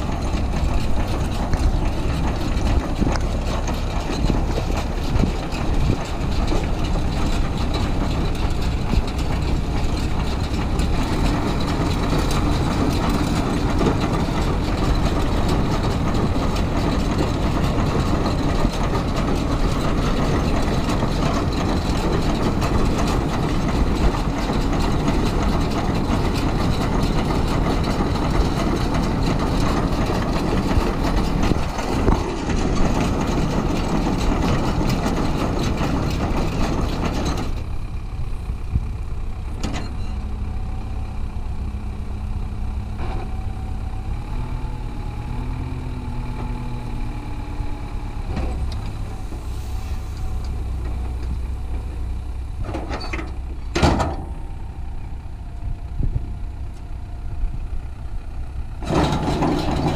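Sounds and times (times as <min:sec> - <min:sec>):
baler rolling hay: 0:00.0 - 0:38.4, 0:48.1 - 0:52.6
tractor engine running: 0:00.0 - 0:59.9.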